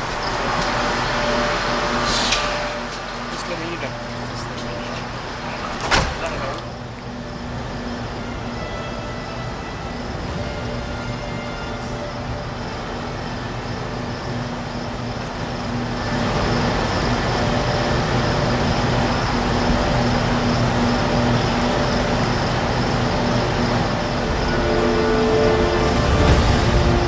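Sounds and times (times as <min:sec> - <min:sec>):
steady mechanical hum: 0:00.0 - 0:27.0
noisy rumble: 0:09.6 - 0:27.0.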